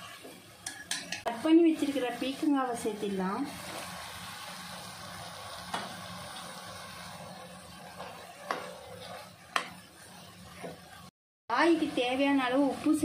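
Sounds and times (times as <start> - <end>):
spatula stirring in a pot: 0.0 - 1.4, 6.9 - 11.1
spatula clinking against pot: 0.6 - 1.3.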